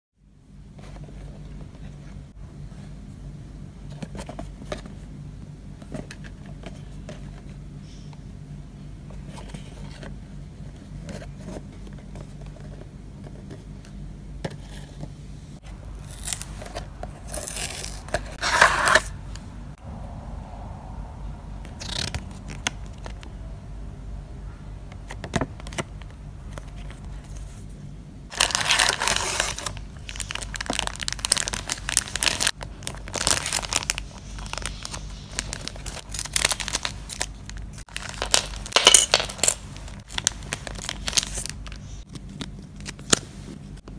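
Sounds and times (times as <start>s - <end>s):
paper and cardboard rustling: 3.9s - 5.1s, 9.1s - 19.2s, 26.5s - 43.8s
plastic bag crinkling: 28.3s - 42.0s.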